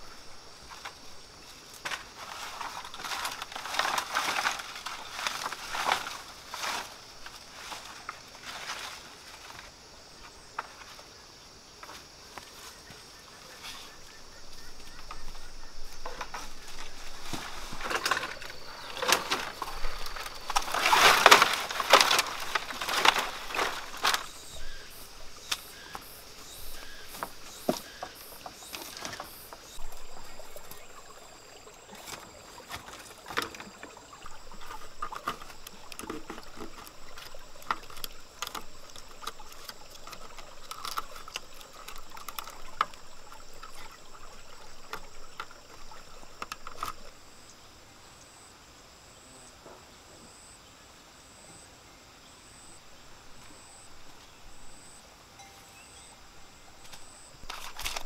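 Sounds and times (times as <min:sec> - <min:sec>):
bamboo poles knocking and rattling: 0:00.5 - 0:11.1, 0:14.7 - 0:31.0, 0:31.9 - 0:47.2, 0:56.8 - 0:58.0.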